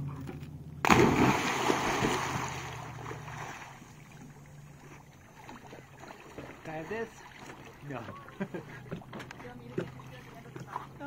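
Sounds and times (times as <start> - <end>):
dog splashing into water: 0.8 - 3.9
churning water: 0.8 - 11.0.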